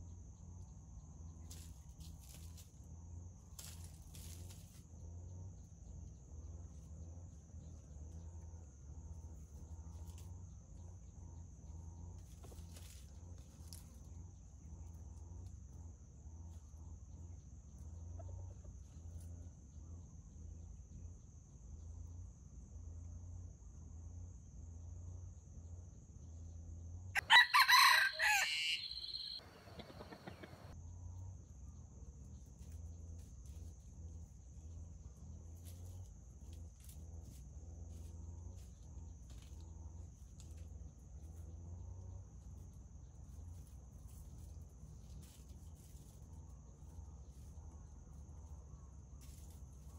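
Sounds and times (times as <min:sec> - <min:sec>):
insects chirring: 0:27.2 - 0:30.8
rooster crowing: 0:27.2 - 0:30.8.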